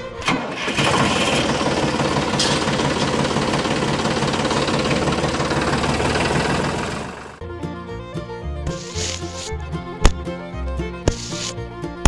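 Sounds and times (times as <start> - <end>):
tractor engine knocking: 0.2 - 7.4.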